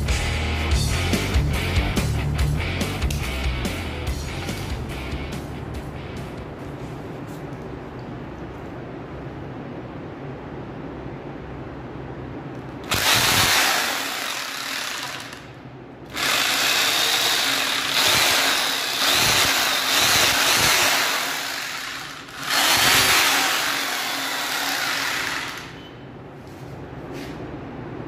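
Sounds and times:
hammer drill running: 12.8 - 25.8.

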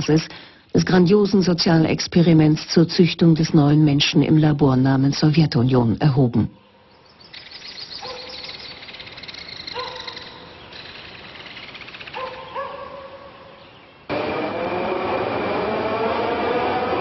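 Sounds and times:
birds chirping in trills: 5.7 - 14.1
dog barks: 8.0 - 8.5, 9.7 - 10.5, 12.1 - 13.4
motor whine: 14.1 - 17.0
subway train running: 14.1 - 17.0.

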